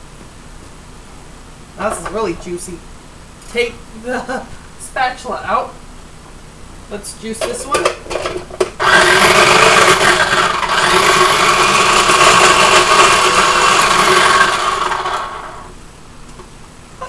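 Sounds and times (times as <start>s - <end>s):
food processor motor chopping: 7.8s - 15.7s.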